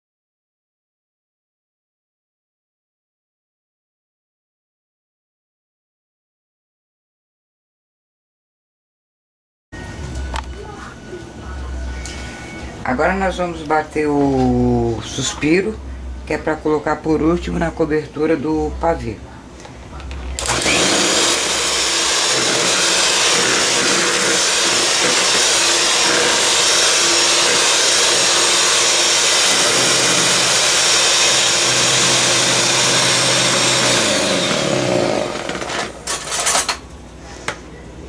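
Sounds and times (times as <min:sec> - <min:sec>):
electric hand mixer running: 0:20.4 - 0:36.5.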